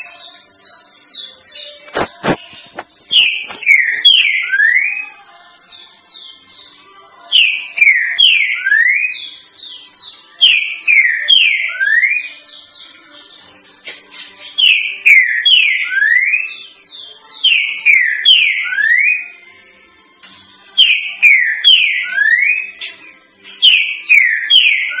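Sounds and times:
bird singing whistled phrase: 0:03.2 - 0:05.0, 0:10.4 - 0:12.4, 0:20.8 - 0:22.9, 0:23.6 - 0:25.0.

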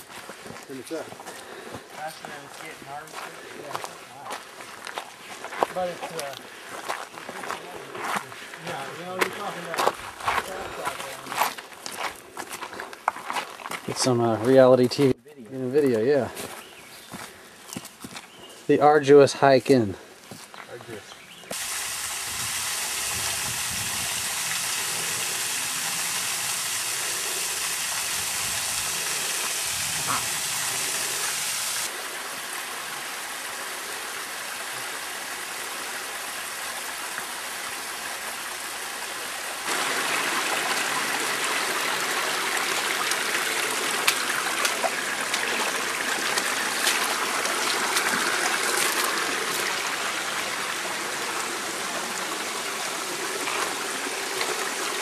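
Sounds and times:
water rushing: 0:21.5 - 0:55.0.

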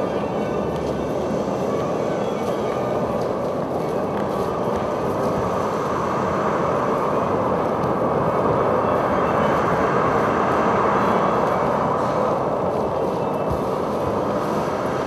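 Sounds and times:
loud rushing rumble: 0:04.4 - 0:15.0.

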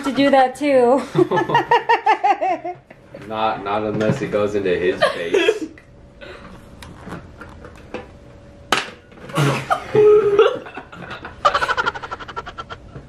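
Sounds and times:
people laughing: 0:01.0 - 0:02.8, 0:09.4 - 0:13.0.

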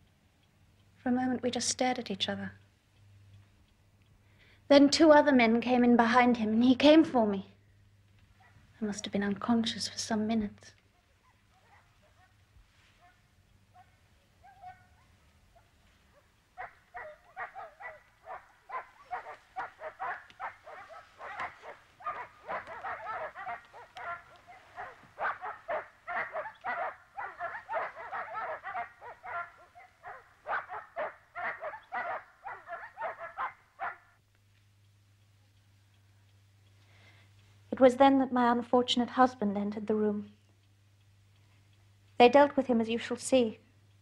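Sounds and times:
dog barking: 0:08.4 - 0:08.6, 0:11.0 - 0:12.4, 0:13.0 - 0:34.1.

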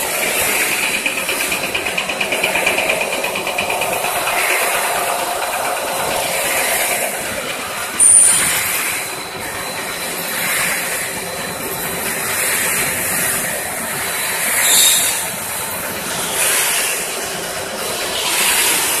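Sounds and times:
production line machinery hissing: 0:00.0 - 0:19.0.

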